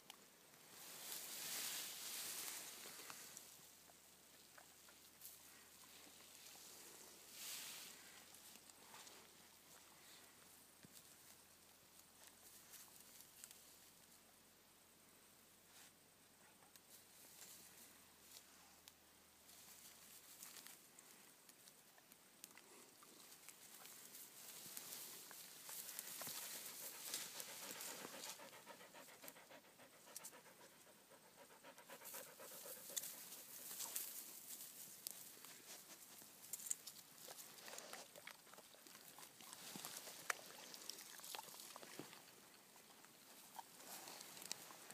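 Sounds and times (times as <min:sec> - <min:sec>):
twigs rustling: 0:22.4 - 0:29.2
dogs panting: 0:25.8 - 0:34.1.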